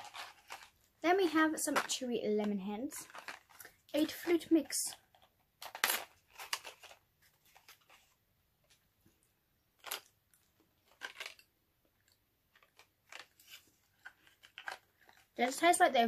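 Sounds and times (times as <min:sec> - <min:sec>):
candy box rattling: 0:00.0 - 0:08.0, 0:10.8 - 0:11.5, 0:12.5 - 0:15.6.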